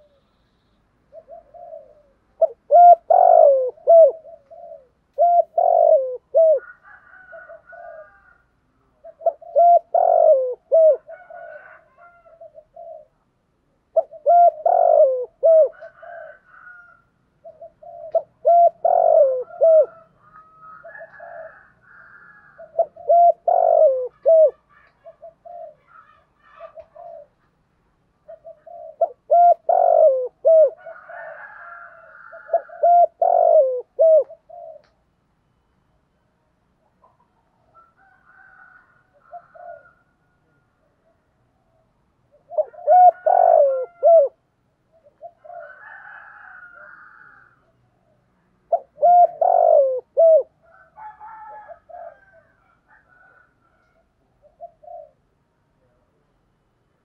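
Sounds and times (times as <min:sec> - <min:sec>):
dove cooing: 0:00.0 - 0:00.4, 0:01.0 - 0:27.5, 0:28.2 - 0:35.0, 0:36.8 - 0:56.3
faint bird chirps: 0:00.0 - 0:03.4.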